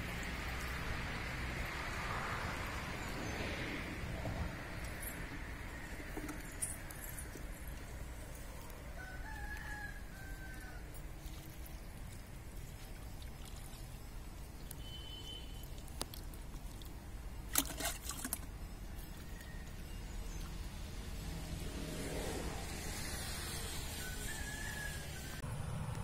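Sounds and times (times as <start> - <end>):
rooster crowing: 8.8 - 10.9, 23.6 - 25.5
water poured onto soil: 11.2 - 18.6.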